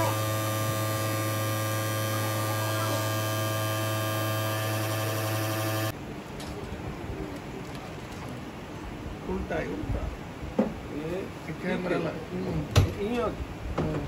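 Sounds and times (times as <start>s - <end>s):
electrical hum: 0.0s - 5.9s.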